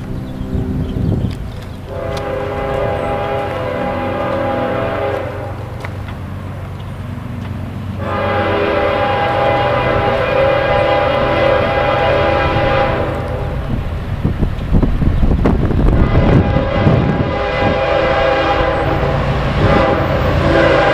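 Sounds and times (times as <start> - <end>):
locomotive air horn blasts: 1.9 - 5.7, 8.0 - 13.7, 15.9 - 20.9.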